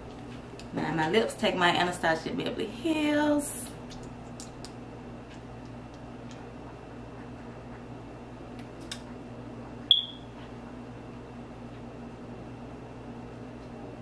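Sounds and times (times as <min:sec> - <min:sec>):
steady low hum: 0:00.0 - 0:14.0
short high-pitched beep: 0:09.9 - 0:10.3.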